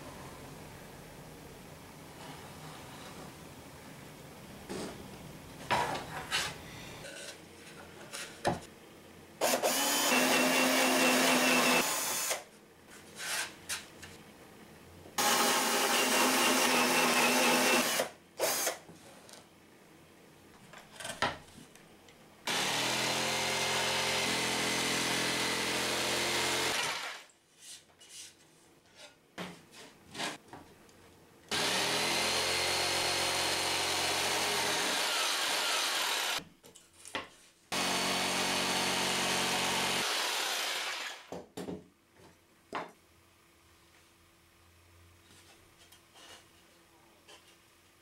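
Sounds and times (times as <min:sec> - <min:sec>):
jigsaw cutting wood: 0:09.4 - 0:12.5, 0:15.2 - 0:18.8, 0:22.5 - 0:27.3, 0:31.5 - 0:36.4, 0:37.7 - 0:41.3.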